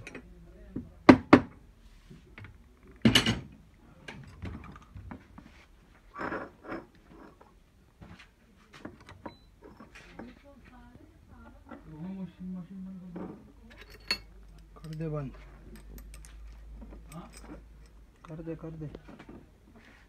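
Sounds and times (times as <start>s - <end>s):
metal parts and tools clinking: 13.7s - 18.6s.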